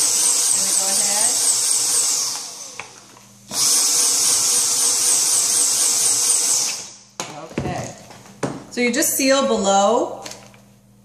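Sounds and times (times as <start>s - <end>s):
vacuum motor whining: 0.0s - 7.0s.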